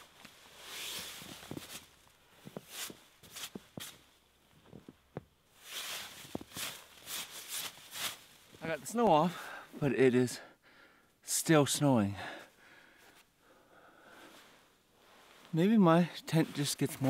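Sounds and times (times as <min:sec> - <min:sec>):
snow brushed off tent: 0:00.0 - 0:02.0, 0:02.6 - 0:04.0, 0:05.6 - 0:09.0
footsteps in snow: 0:00.0 - 0:04.9, 0:05.6 - 0:09.0, 0:14.3 - 0:17.0.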